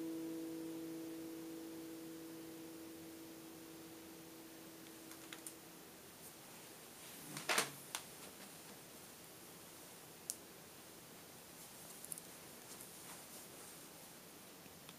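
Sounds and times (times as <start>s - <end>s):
lap steel guitar note ringing: 0.0s - 5.6s
guitar handling rustle: 11.6s - 13.9s.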